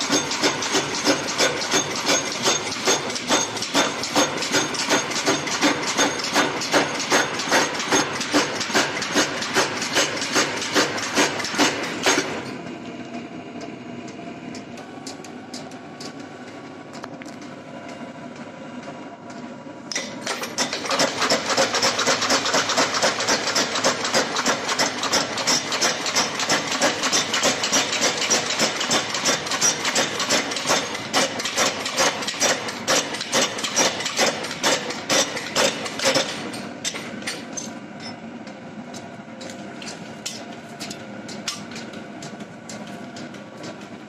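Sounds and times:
power hammer pounding hot steel: 0.0 - 12.5, 19.9 - 37.4
steady machine hum: 0.0 - 44.0.

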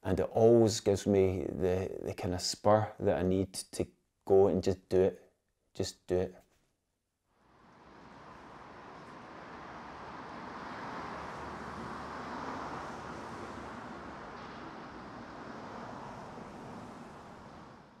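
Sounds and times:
city street traffic: 7.4 - 18.0.

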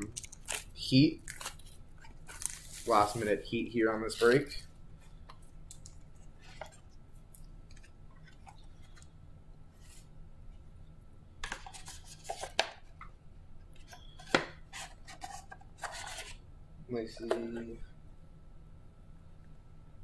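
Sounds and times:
card packs rustling: 0.0 - 4.6.

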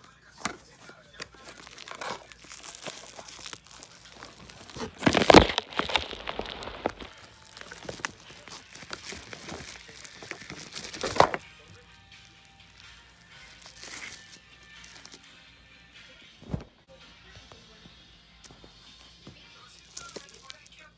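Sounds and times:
cardboard box rustling: 0.4 - 11.5, 19.9 - 20.6
plastic packaging crinkling: 0.4 - 15.3, 19.8 - 20.9.

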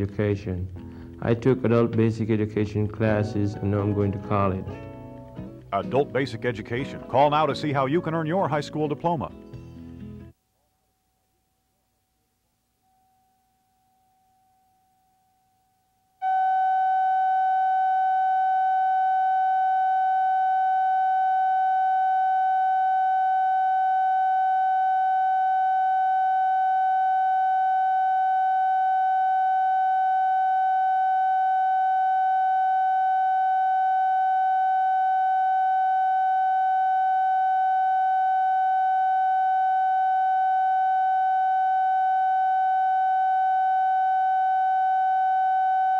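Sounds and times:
electronic test tone: 16.2 - 45.9.

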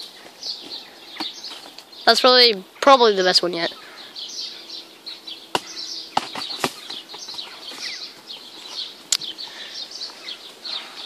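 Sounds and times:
birds chirping: 0.0 - 11.0.

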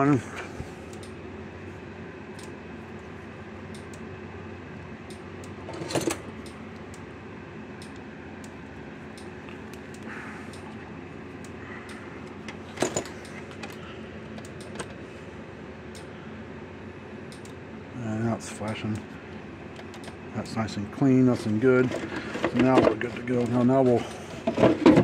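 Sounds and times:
steady low hum: 0.0 - 25.0
sharp crimping clicks: 0.9 - 1.2, 2.3 - 2.6, 3.7 - 4.1, 7.7 - 10.8, 13.2 - 15.0, 17.2 - 17.6, 18.4 - 19.1, 19.7 - 20.6.

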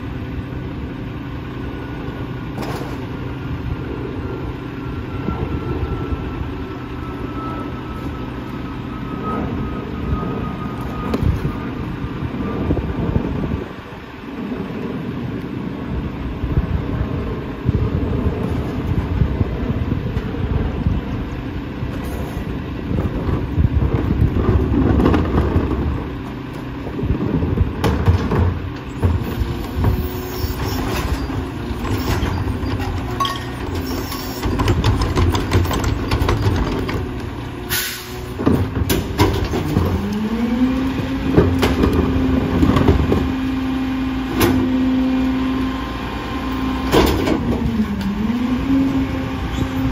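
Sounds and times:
diesel engine running: 0.0 - 49.9
hydraulic packer: 1.8 - 13.9, 17.9 - 49.9.

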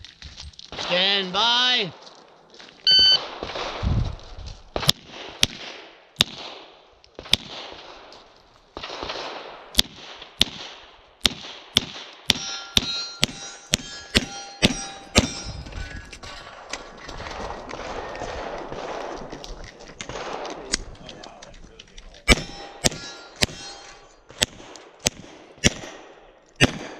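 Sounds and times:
shot timer beep: 2.9 - 3.2
pistol shots: 4.7 - 8.1, 8.8 - 15.4, 17.3 - 19.3, 20.0 - 20.9, 22.2 - 26.9
steel targets ringing: 12.3 - 16.0, 22.3 - 24.2.

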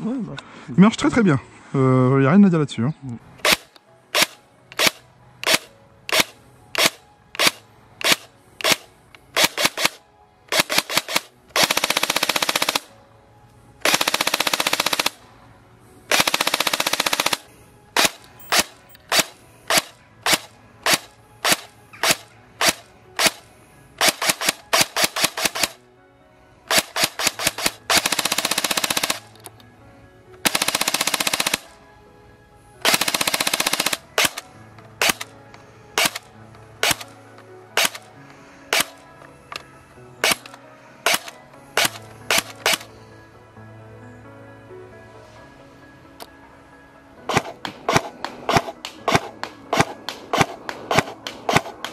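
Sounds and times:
airsoft gun firing: 3.4 - 8.8, 9.4 - 12.9, 13.8 - 15.2, 16.1 - 23.4, 24.0 - 25.8, 26.7 - 29.2, 30.4 - 31.6, 32.8 - 34.4, 35.0 - 35.3, 36.0 - 36.2, 36.8 - 37.1, 37.8 - 38.1, 38.7 - 39.0, 40.2 - 42.9, 47.3 - 51.9.

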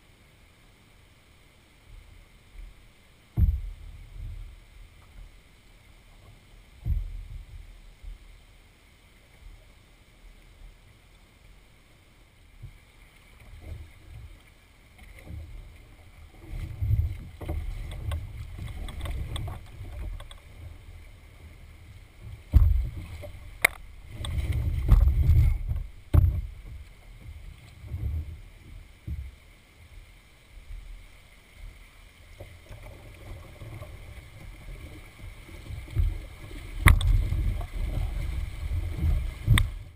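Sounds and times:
water splashing against hull: 1.8 - 39.9
low thumps and knocks: 3.3 - 5.3, 6.8 - 8.2, 22.2 - 29.4, 35.6 - 39.9.

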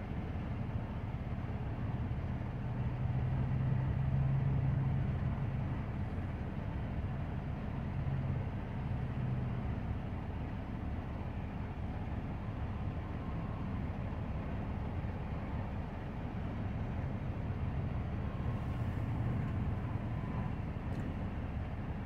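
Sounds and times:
excavator diesel engine running: 0.0 - 22.0.

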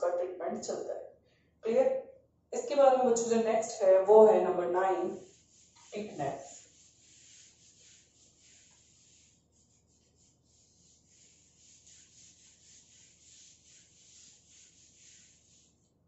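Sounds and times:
eraser rubbing on whiteboard: 5.1 - 16.0.

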